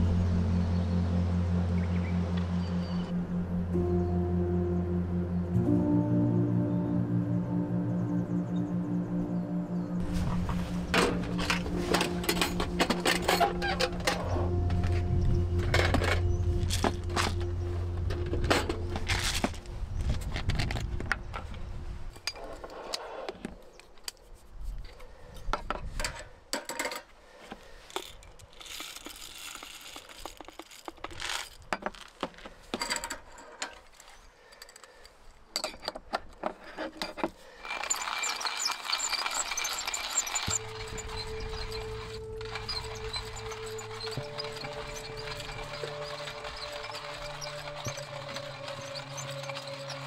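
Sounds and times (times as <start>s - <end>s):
background music: 0.0s - 22.0s, 39.8s - 50.0s
small hard objects clinking: 10.0s - 21.6s, 26.5s - 35.9s, 37.0s - 50.0s.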